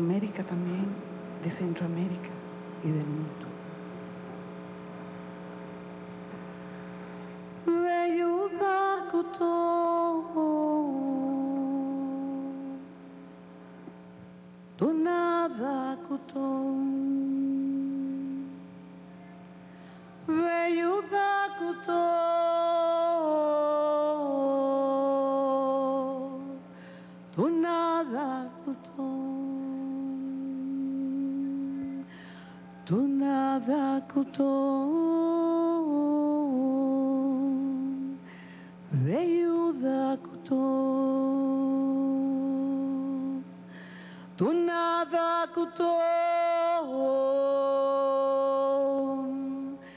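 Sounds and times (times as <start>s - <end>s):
woman singing a chant: 0.0s - 3.6s, 7.6s - 13.0s, 14.8s - 18.7s, 20.2s - 26.7s, 27.3s - 38.3s, 38.9s - 43.6s, 44.4s - 49.9s
low hum: 0.0s - 49.9s.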